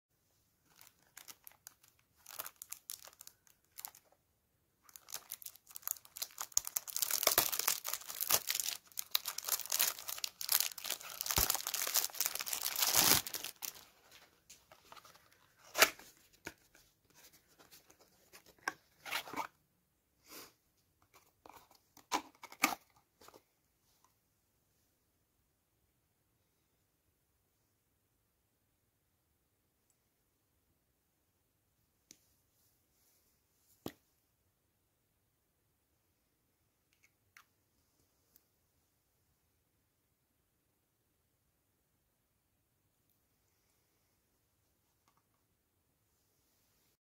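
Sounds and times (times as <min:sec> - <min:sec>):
cellophane crinkling and tearing: 0:00.7 - 0:04.2, 0:04.8 - 0:14.2.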